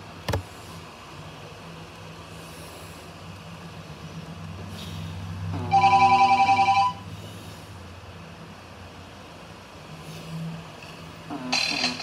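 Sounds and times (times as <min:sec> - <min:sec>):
phone trilling beep: 0:05.7 - 0:07.0.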